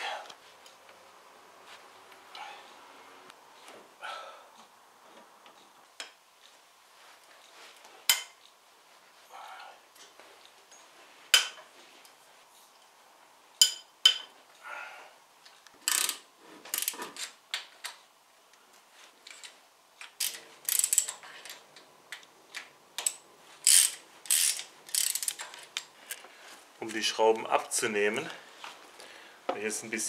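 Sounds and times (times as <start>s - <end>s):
ratchet wrench clicking: 15.8s - 17.0s, 20.1s - 21.2s, 23.0s - 25.6s.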